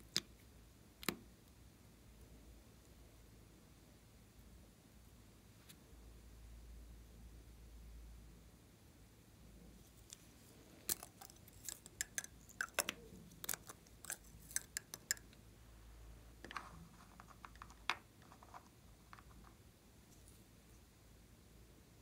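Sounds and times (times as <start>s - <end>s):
cosmetic bottle caps clicking: 10.9s - 15.4s.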